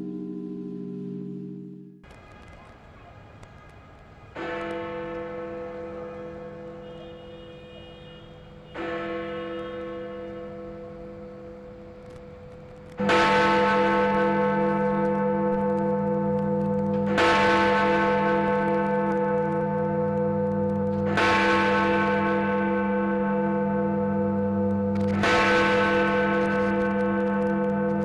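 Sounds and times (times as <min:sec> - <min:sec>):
bell humming: 0:00.0 - 0:02.0
large bell striking: 0:00.0 - 0:02.0, 0:13.0 - 0:28.0.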